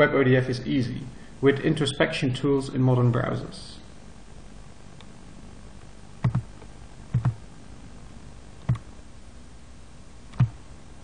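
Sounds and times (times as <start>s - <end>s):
faint background hiss: 0.0s - 11.0s
mouse button clicks: 7.2s - 7.4s.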